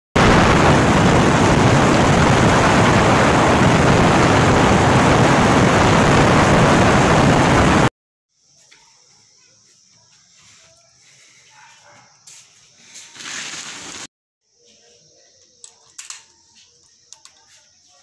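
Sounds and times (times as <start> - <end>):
wind rushing over microphone: 0.2 - 7.9.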